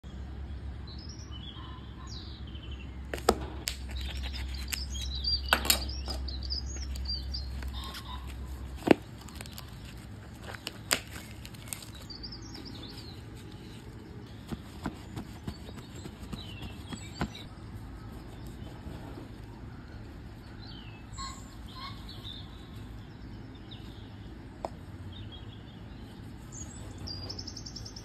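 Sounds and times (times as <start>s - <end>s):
small birds chirping: 0.0s - 28.0s
plastic packaging crackling: 6.8s - 16.0s.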